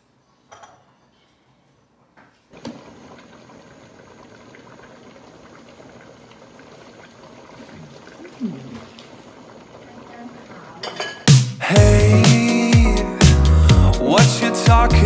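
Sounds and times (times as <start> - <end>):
broth bubbling: 2.7 - 10.8.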